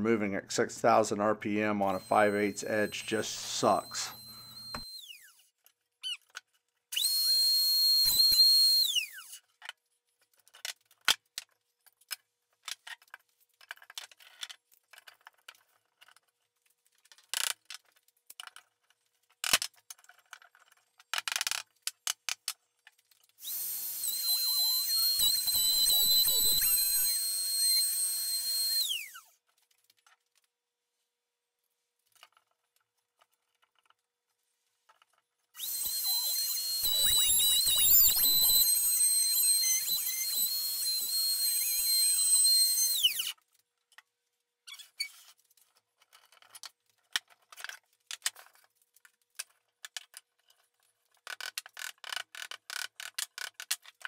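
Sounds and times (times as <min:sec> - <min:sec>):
router high whine: 0:01.9 - 0:05.3, 0:07.0 - 0:09.3, 0:23.4 - 0:29.2, 0:35.6 - 0:43.3.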